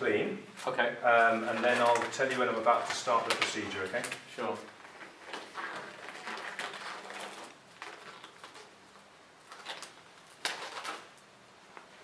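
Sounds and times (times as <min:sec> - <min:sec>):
gloves rustling: 0:00.5 - 0:12.0.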